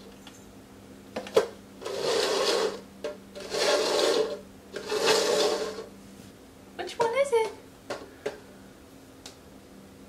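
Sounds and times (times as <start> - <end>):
plastic cups scraping on tiled floor: 1.2 - 5.9.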